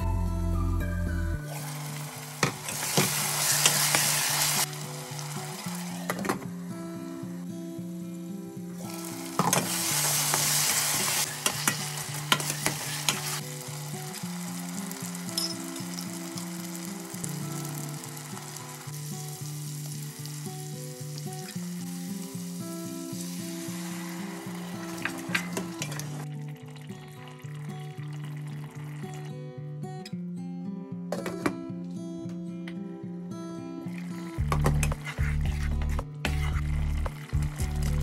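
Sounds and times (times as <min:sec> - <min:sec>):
soft background music: 0:00.0 - 0:29.8
gravy sizzling and bubbling: 0:01.4 - 0:29.4, 0:33.9 - 0:38.0
metal ladle clinking on pot: 0:15.4 - 0:15.6
stirring: 0:34.4 - 0:38.0.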